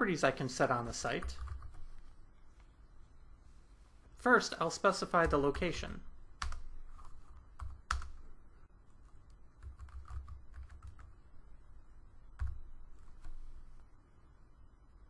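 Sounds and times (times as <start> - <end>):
computer keyboard typing: 1.2 - 2.0, 6.4 - 8.3, 8.9 - 11.2, 12.4 - 13.6.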